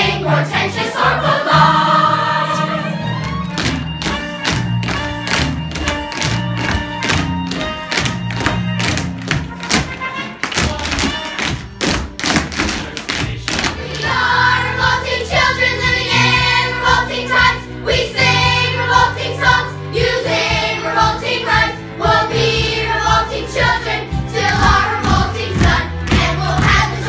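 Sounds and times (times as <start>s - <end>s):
instrumental accompaniment with bass: 0.0s - 27.0s.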